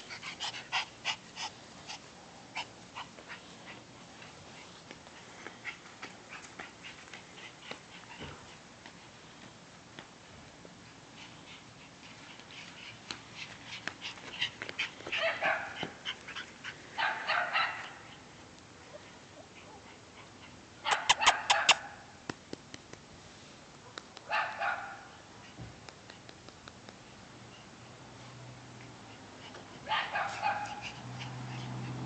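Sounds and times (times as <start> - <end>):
dogs yipping and barking: 11.5 - 22.1, 24.3 - 25.2, 29.5 - 32.0.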